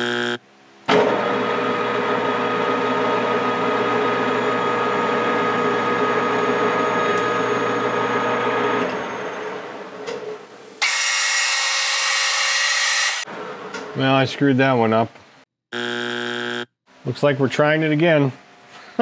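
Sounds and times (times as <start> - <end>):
metal lathe whining: 1.1 - 9.5.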